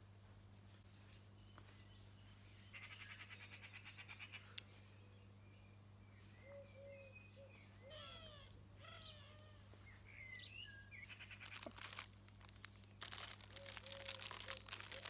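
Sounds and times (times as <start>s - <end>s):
bird chirps: 1.4s - 11.8s
crinkling and rustling: 11.3s - 15.0s.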